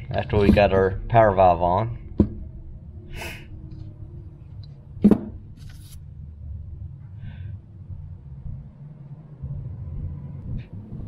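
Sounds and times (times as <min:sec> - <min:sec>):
faint low hum: 0:00.0 - 0:11.0
parts rustling: 0:05.0 - 0:06.0.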